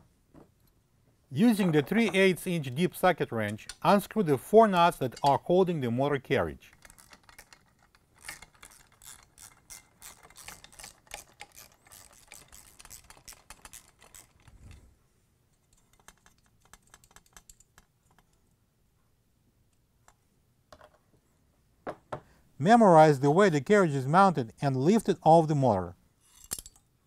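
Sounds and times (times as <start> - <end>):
socket wrench ratchet clicking: 8.2 - 14.3.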